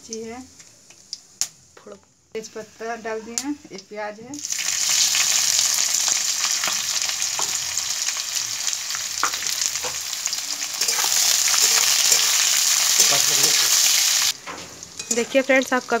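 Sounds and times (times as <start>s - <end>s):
onions sizzling in hot oil: 0.1s - 1.5s, 2.4s - 16.0s
spatula stirring against pan: 8.9s - 15.4s.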